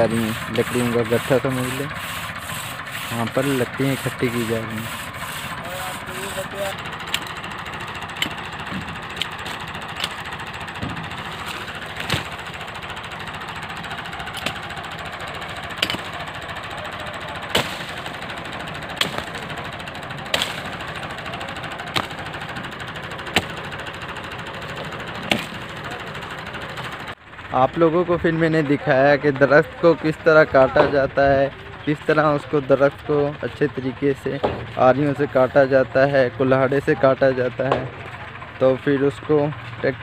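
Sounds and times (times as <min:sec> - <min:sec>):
axe chopping wood: 0:08.2 - 0:12.6, 0:14.3 - 0:14.7, 0:15.7 - 0:16.2, 0:17.5 - 0:18.2, 0:19.0 - 0:19.6, 0:20.2 - 0:21.0, 0:21.8 - 0:22.3, 0:23.3 - 0:23.7, 0:25.2 - 0:25.6.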